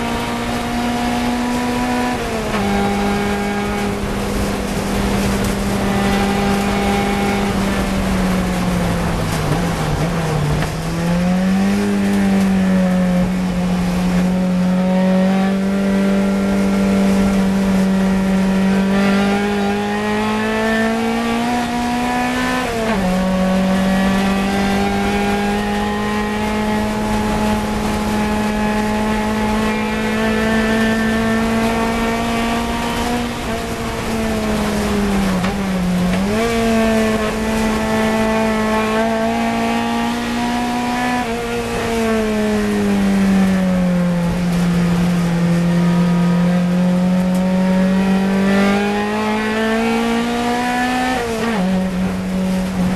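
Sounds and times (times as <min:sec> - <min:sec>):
car engine racing at high revs: 0:00.0 - 0:52.9.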